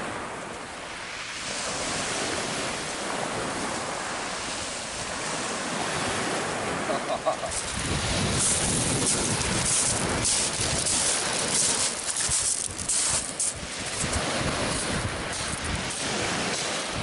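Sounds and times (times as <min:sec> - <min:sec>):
surf washing onto shingle: 0:00.0 - 0:17.0
wind buffeting microphone: 0:07.4 - 0:17.0.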